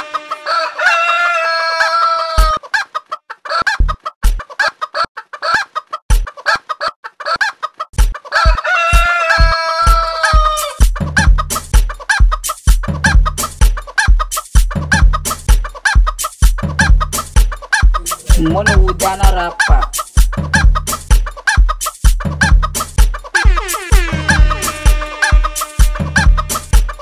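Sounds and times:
rooster crowing: 0:00.0 - 0:02.6, 0:08.3 - 0:10.8
drum beat with kick thuds: 0:02.4 - 0:02.6, 0:03.7 - 0:04.4, 0:06.1 - 0:06.3, 0:08.0 - 0:27.0.

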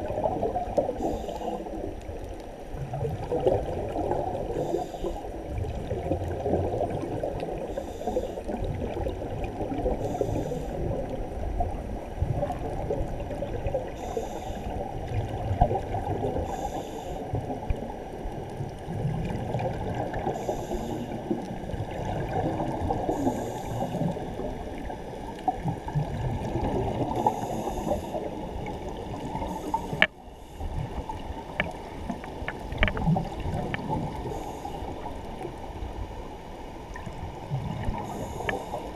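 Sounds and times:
water gurgling against camera: 0:00.0 - 0:38.9
small clicks: 0:38.4 - 0:38.8.

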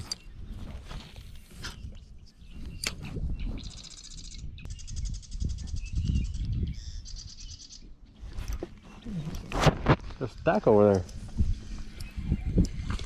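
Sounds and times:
songbird trilling: 0:01.8 - 0:08.2.

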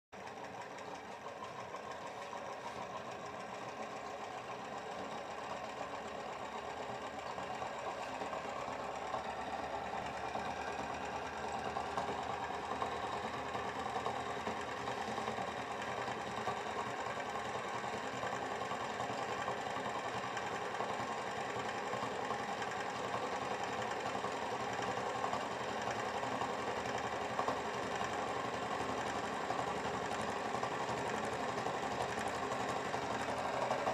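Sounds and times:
motor rotor whirring: 0:28.8 - 0:33.9.

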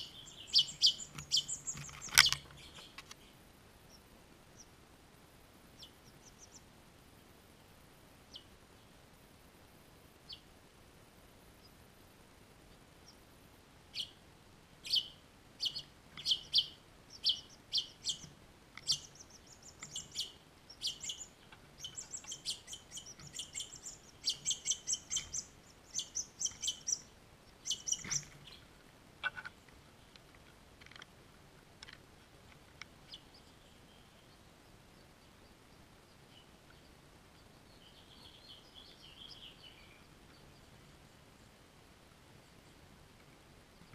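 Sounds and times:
nestlings chirping: 0:00.0 - 0:04.7, 0:05.8 - 0:06.7, 0:13.9 - 0:14.2, 0:14.8 - 0:29.4.

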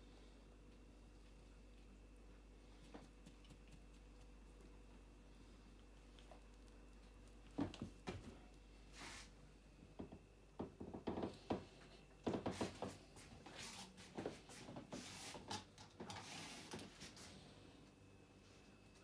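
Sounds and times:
cats moving on furniture: 0:10.0 - 0:17.3.

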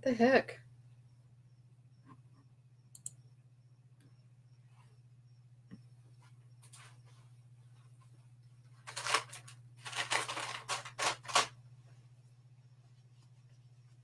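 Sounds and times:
steady low hum: 0:00.0 - 0:14.0
rustling scraping handling noises: 0:08.8 - 0:11.5.

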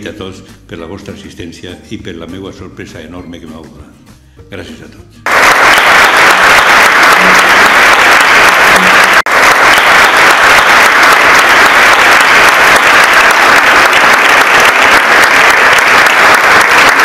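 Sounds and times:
audience applauding: 0:05.3 - 0:17.0.

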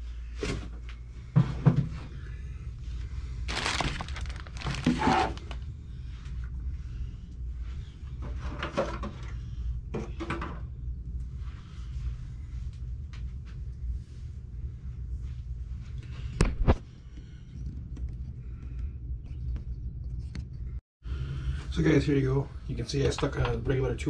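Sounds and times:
steady low hum: 0:00.0 - 0:24.0
plastic bag crinkling: 0:03.5 - 0:05.6.

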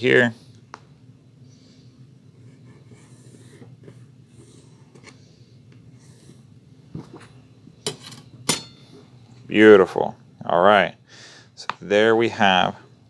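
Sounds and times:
pencil scratching on paper: 0:02.3 - 0:05.1.

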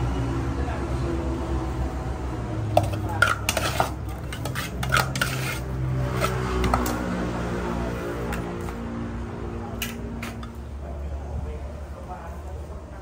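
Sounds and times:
utensils clinking against dishes: 0:02.7 - 0:07.0.

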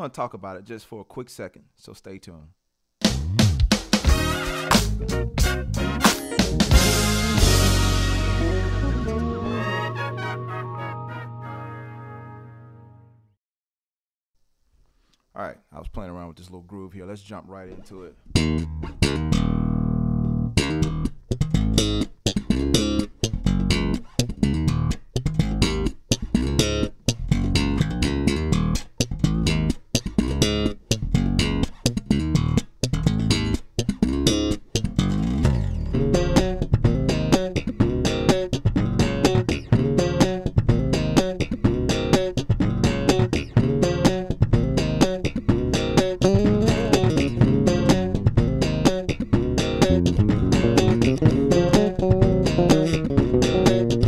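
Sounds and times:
electric bass guitar groove: 0:03.0 - 0:09.6, 0:17.8 - 0:54.0.

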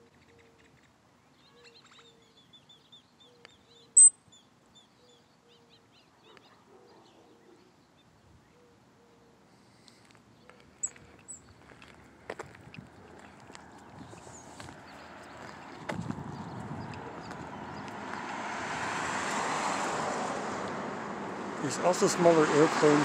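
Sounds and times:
birds chirping: 0:00.0 - 0:18.5
sharp loud bird chirp: 0:01.5 - 0:05.2.

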